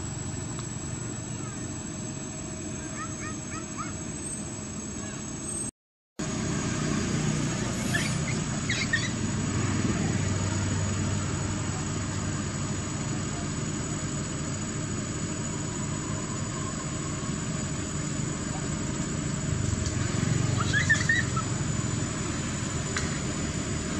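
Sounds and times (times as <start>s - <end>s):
low motor rumble: 0.0s - 5.6s, 6.2s - 23.9s
thin high whine: 0.0s - 23.9s
short high squeaks: 7.7s - 9.2s, 20.6s - 21.5s.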